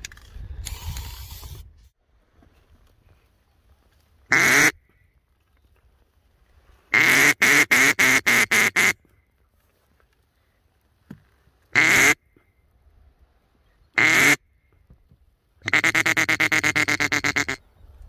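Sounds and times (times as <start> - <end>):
duck call quacks: 4.3 - 4.8, 6.9 - 9.0, 11.7 - 12.2, 14.0 - 14.4, 15.6 - 17.6.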